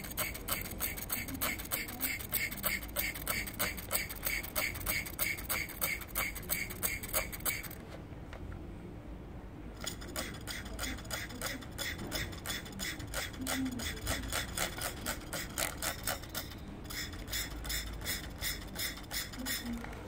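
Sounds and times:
rhythmic clicking pulse: 0.0s - 7.8s, 9.8s - 19.9s.

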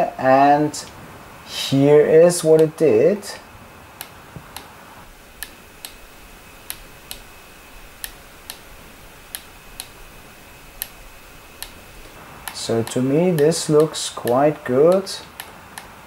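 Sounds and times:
computer mouse clicks: 6.6s - 7.3s.

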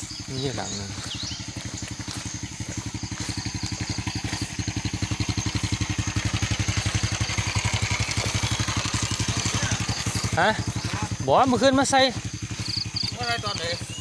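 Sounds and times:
small motorcycle engine idling: 0.0s - 14.0s.

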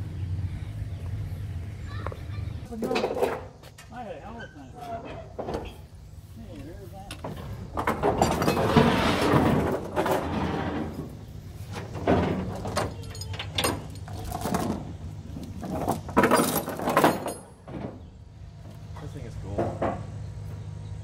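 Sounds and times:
tie-down hardware rattling and clanking: 2.6s - 20.2s.

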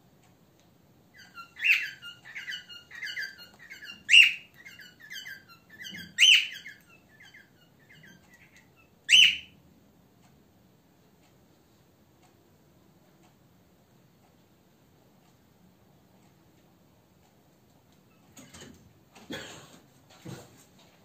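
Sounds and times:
birds chirping: 1.1s - 9.6s.

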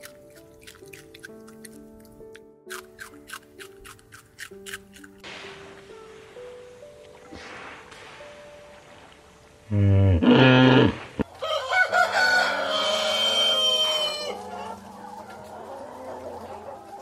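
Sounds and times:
rooster crowing: 11.2s - 14.8s.

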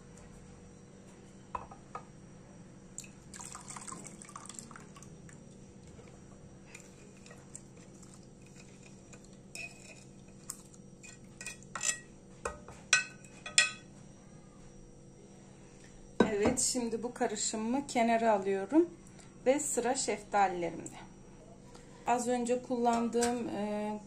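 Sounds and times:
liquid trickling into jug: 3.0s - 5.6s
dishware clinks: 11.4s - 13.9s.

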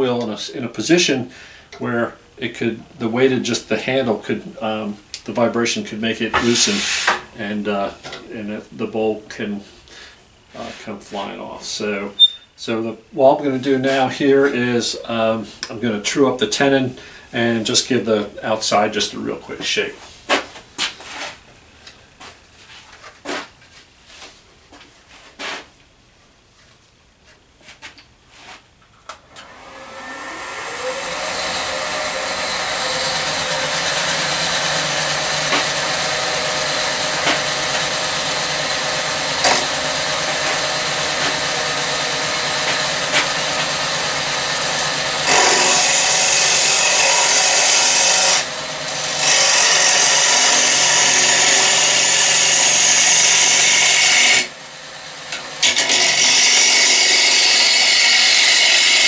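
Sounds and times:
gouge cutting wood shavings: 6.4s - 7.2s, 29.8s - 54.5s
wood lathe running: 29.3s - 59.0s.

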